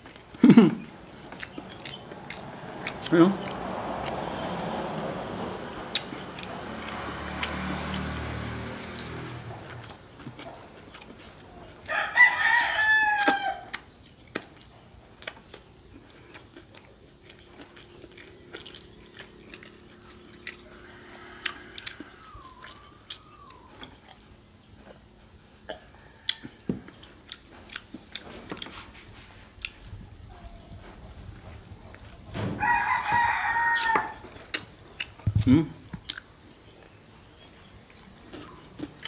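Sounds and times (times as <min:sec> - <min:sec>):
chewing crunchy fried chicken: 0:00.0 - 0:04.8, 0:05.9 - 0:30.0, 0:31.3 - 0:39.0
wet mouth clicks: 0:05.9 - 0:06.5, 0:34.5 - 0:36.3
rooster crowing: 0:11.8 - 0:13.7, 0:20.6 - 0:23.8, 0:25.7 - 0:27.0, 0:32.4 - 0:34.4.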